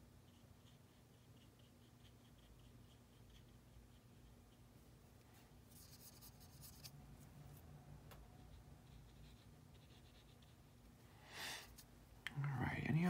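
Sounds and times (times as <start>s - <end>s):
paintbrush scratching on paper: 0.2s - 4.8s, 5.7s - 7.0s, 8.4s - 10.7s.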